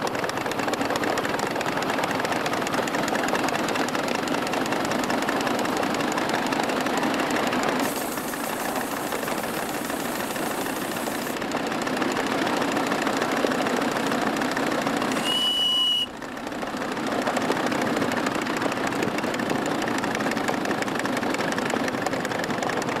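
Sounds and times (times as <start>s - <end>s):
steam locomotive exhaust: 0.0s - 16.8s
wheels on rails: 0.0s - 23.0s
high steam hiss: 7.8s - 11.4s, 15.1s - 16.1s
steam whistle blast: 15.1s - 16.2s.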